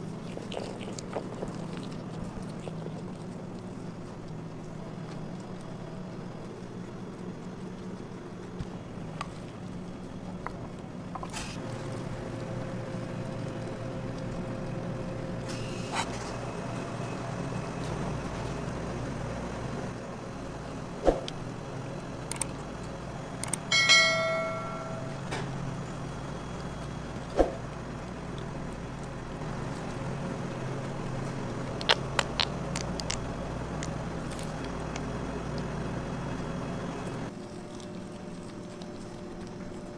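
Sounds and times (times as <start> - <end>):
steady low hum: 0.0 - 39.9
metal clang: 23.7 - 25.3.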